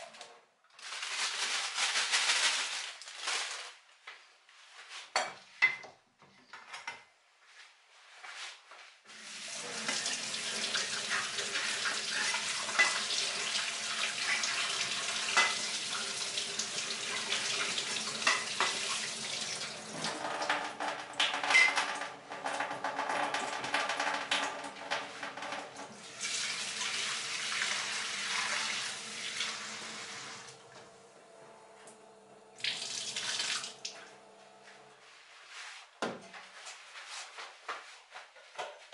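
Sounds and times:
tap water running into sink: 9.3s - 30.9s, 32.6s - 34.2s.

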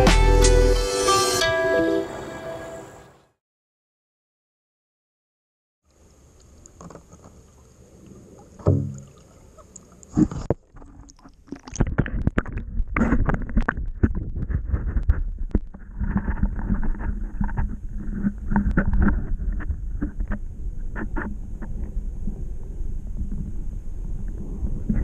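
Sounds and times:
water splashing and sloshing: 6.1s - 25.0s
muffled underwater rumble: 7.9s - 25.0s.

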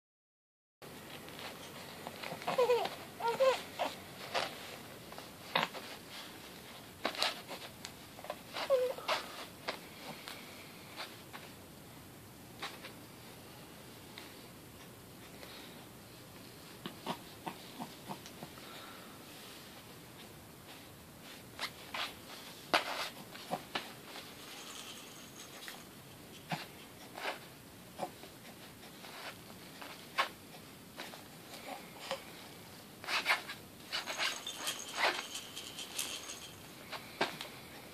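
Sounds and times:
fabric toys rustling and scraping: 0.9s - 11.6s, 19.3s - 37.9s
baby cooing: 2.4s - 4.0s.

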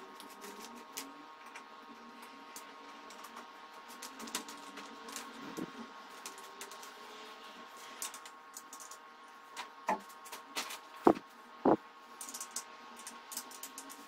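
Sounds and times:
faint hum: 11.0s - 12.2s
small metal parts clicking: 12.2s - 14.0s.

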